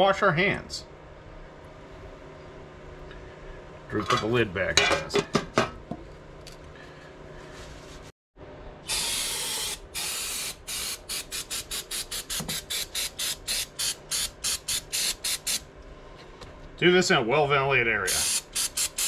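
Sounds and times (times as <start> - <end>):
aerosol can spraying: 8.9 - 15.6, 18.1 - 19.0.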